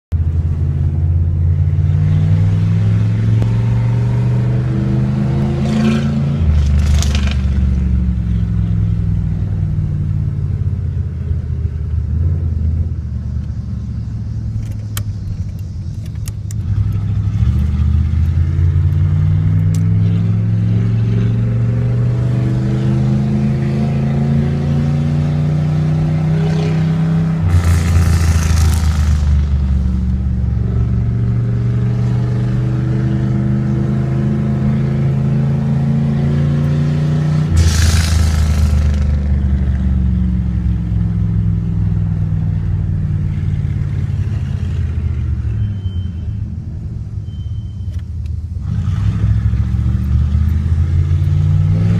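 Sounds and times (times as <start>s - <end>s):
exhaust popping: 6.4s - 8.0s, 27.3s - 31.4s, 37.4s - 40.8s
pickup engine revving: 16.5s - 42.0s.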